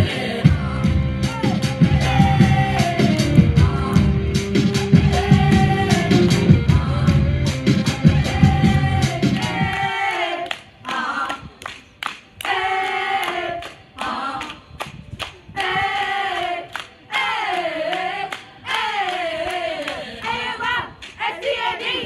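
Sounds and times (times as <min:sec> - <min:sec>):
girls singing together: 0:00.0 - 0:14.8, 0:15.4 - 0:22.0
handclaps: 0:09.4 - 0:15.7, 0:16.3 - 0:20.0.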